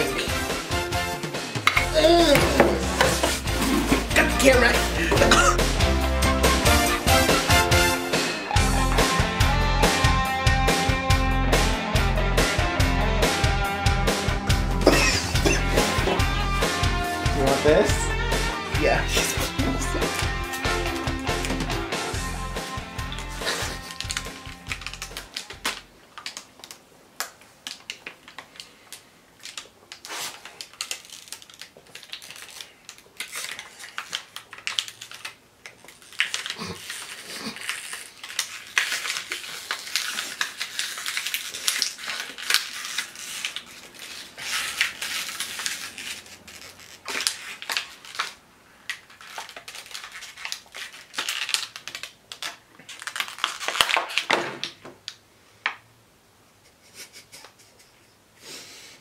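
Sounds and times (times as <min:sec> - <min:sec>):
plastic bottle crackling and crumpling: 0:01.6 - 0:05.6, 0:23.0 - 0:55.2.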